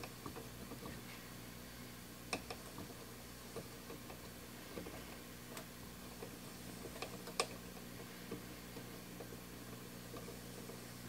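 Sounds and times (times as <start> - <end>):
faint mains hum: 0.0 - 11.0
small ticks and clicks: 2.3 - 10.9.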